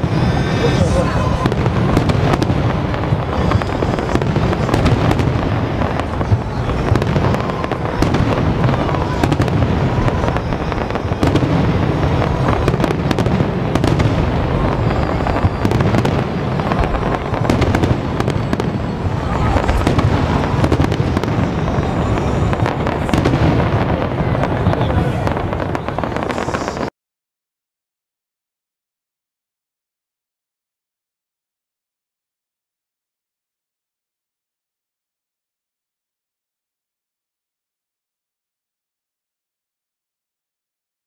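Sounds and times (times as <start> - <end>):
fireworks booming and crackling: 0.0 - 26.9.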